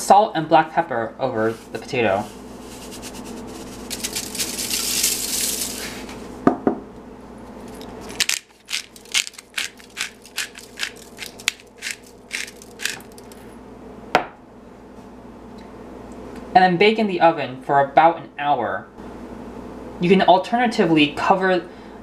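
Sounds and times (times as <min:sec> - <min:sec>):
salt pouring with hissing rush: 0:01.7 - 0:06.3, 0:08.2 - 0:13.4
pepper mill grinding clicks: 0:03.8 - 0:05.9, 0:07.7 - 0:13.4.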